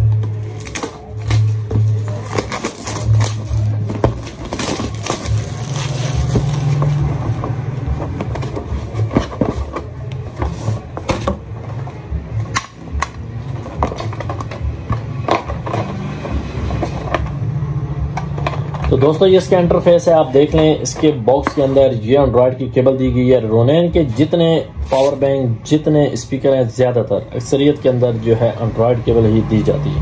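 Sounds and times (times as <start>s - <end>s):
cardboard box being handled: 0.2s - 12.0s
plastic wrap crinkling: 0.3s - 7.1s.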